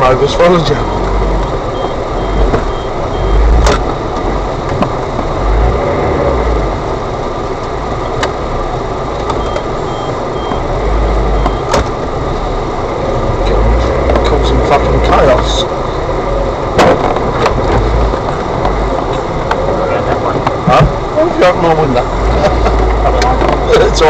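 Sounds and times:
off-road engine rumble: 0.0 - 24.0
faint high beeps: 0.7 - 3.5, 9.4 - 10.7, 11.3 - 11.7.

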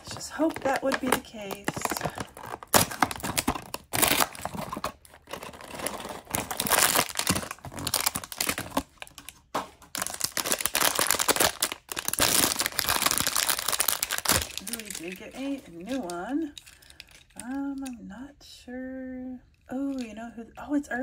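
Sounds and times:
plastic and foil packaging crinkling: 0.0 - 18.0.

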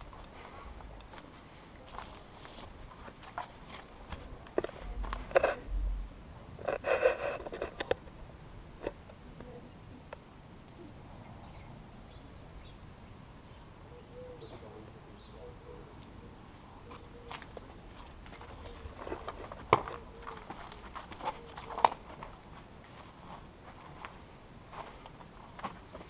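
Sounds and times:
footsteps rustling through undergrowth: 0.0 - 5.7, 16.6 - 26.0
faint bird chirps: 10.7 - 17.4.

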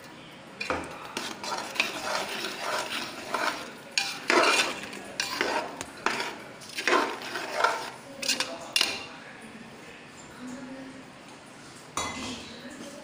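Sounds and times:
spoon scraping pot: 0.6 - 9.1.

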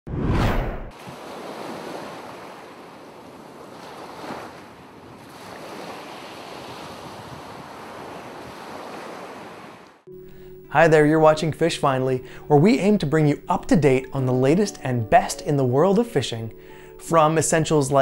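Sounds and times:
ocean surf washing: 0.9 - 10.1.

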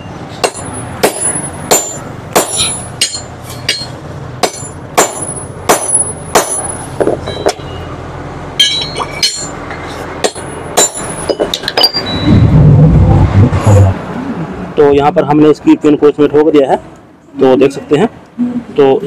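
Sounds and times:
hammer striking steel drift: 0.4 - 7.8, 8.6 - 12.5.

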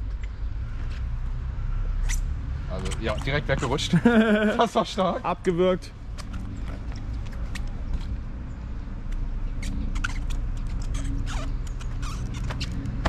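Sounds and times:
small creaks: 6.1 - 8.3, 9.0 - 13.0.

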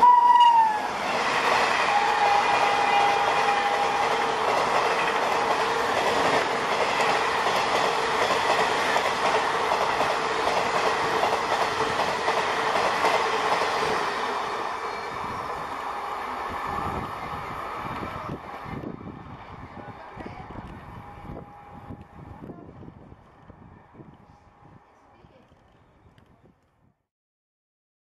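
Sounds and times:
train wheels clacking on rails: 1.0 - 15.8.

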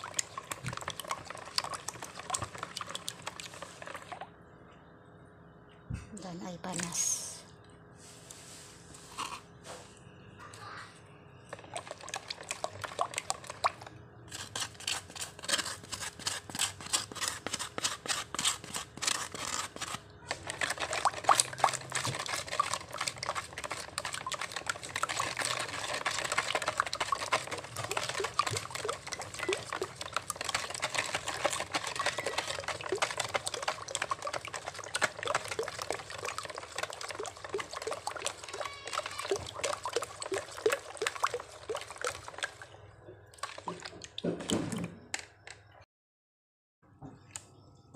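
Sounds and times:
liquid sloshing: 0.0 - 4.4, 11.3 - 45.0.

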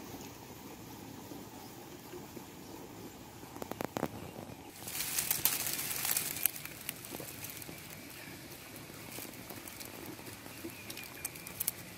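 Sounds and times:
steady hiss: 0.0 - 11.9
crackling clicks and rustling: 3.5 - 11.9.

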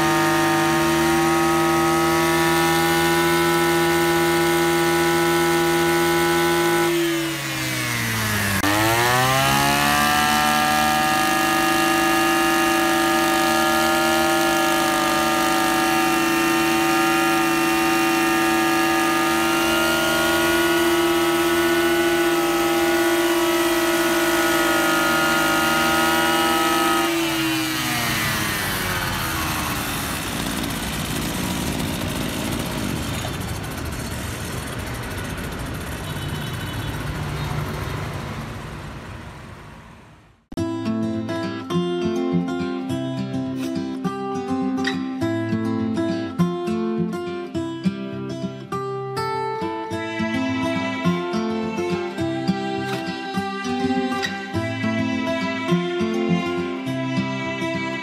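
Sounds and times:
brush cutter engine revving: 0.0 - 40.2.

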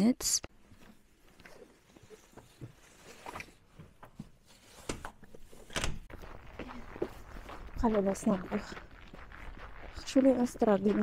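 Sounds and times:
soft footsteps: 0.5 - 11.0.

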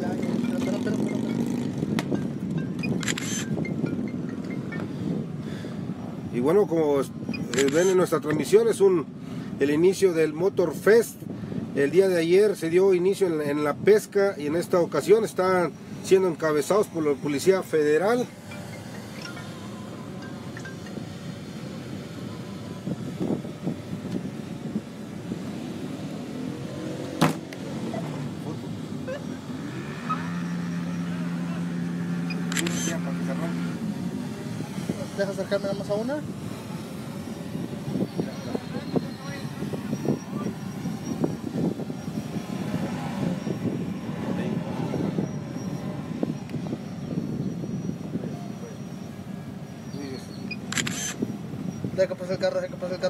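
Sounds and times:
voices: 0.0 - 1.9, 6.0 - 25.7, 27.3 - 53.0
motorcycles and cars passing: 0.0 - 53.0
engine revving up: 25.4 - 35.4.

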